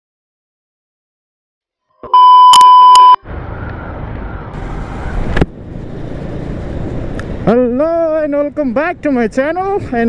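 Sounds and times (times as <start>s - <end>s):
loud electronic beep: 2.1s - 3.2s
motorcycle engine rumble: 3.4s - 10.0s.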